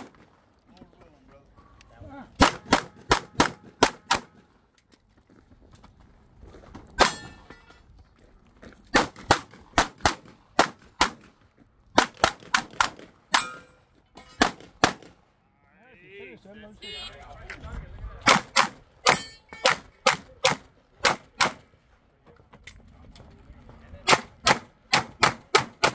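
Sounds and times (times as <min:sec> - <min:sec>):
pistol shots: 0:02.4 - 0:04.4, 0:08.9 - 0:11.3, 0:12.0 - 0:13.6, 0:14.4 - 0:15.2, 0:18.2 - 0:21.6, 0:24.1 - 0:25.9.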